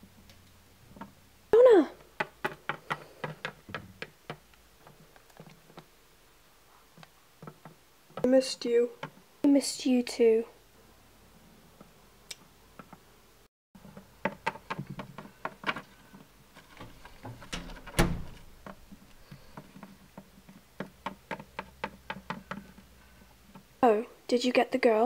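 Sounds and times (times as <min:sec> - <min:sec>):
toy figures knocking on wood: 0:02.2 - 0:04.4.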